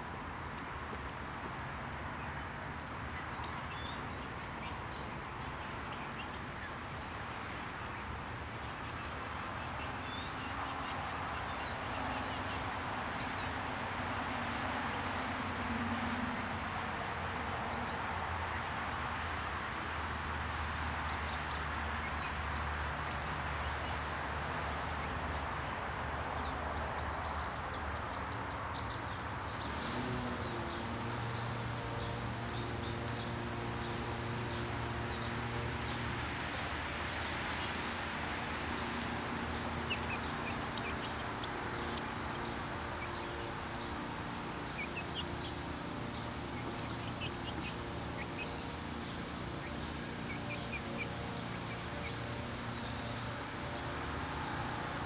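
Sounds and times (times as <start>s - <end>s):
small songbirds chirping: 0.0s - 55.0s
low steady drone: 29.5s - 55.0s.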